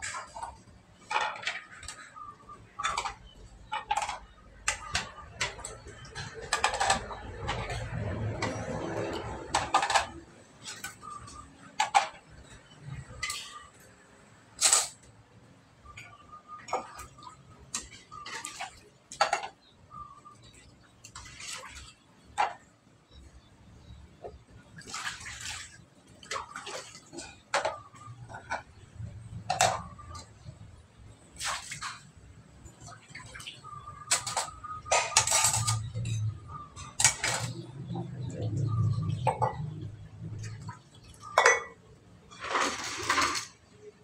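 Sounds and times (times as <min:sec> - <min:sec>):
water splashing and scrubbing: 0:00.0 - 0:13.9, 0:16.7 - 0:19.6, 0:20.2 - 0:22.8, 0:24.3 - 0:43.9
dishes clinking: 0:29.4 - 0:30.3, 0:34.0 - 0:39.8, 0:40.4 - 0:43.6
dishes clinking together: 0:41.2 - 0:41.8.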